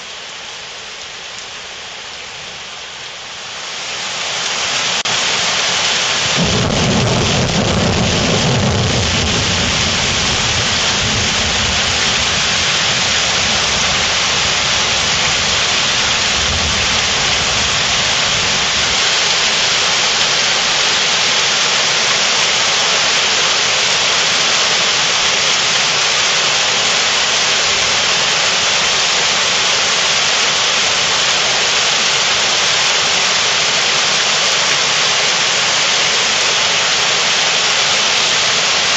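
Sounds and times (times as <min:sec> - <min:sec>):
heavy rain pouring: 0:00.0 - 0:38.9
thunder rumbling: 0:06.2 - 0:19.0.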